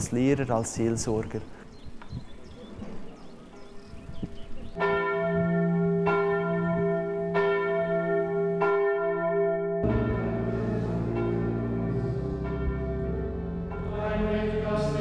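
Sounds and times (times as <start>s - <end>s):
church bell tolling: 4.8s - 15.0s.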